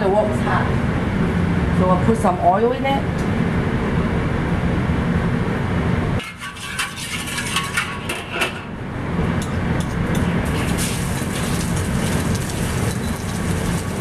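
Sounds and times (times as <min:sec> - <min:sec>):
gas burner rumble: 0:00.0 - 0:14.0
metal spatula scraping a wok: 0:06.2 - 0:08.7.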